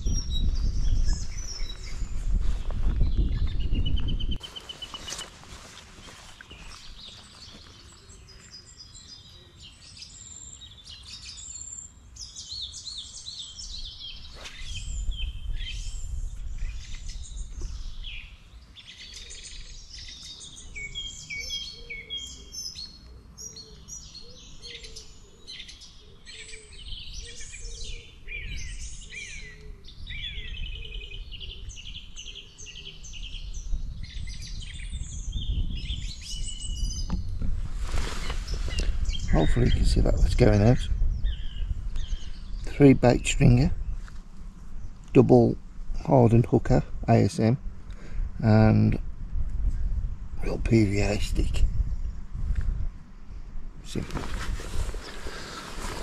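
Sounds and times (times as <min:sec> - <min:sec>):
songbirds singing and chirping: 0:00.0 - 0:56.0
lower repeated bird call: 0:06.0 - 0:37.3.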